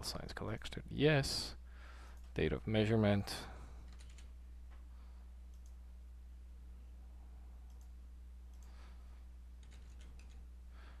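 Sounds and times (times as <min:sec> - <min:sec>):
steady low hum: 0:00.0 - 0:11.0
computer mouse clicks: 0:05.5 - 0:05.8, 0:07.7 - 0:08.8, 0:09.6 - 0:10.4.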